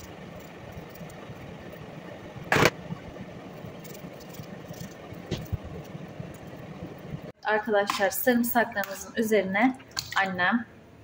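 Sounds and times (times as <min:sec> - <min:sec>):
machine-like hum: 0:00.0 - 0:07.4.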